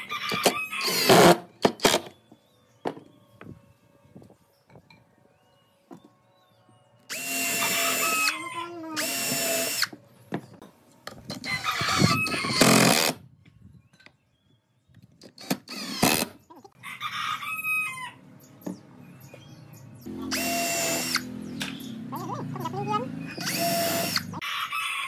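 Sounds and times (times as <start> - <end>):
cordless drill motor whine: 7.1 - 8.3, 9.0 - 9.9, 20.3 - 21.3, 23.4 - 24.3.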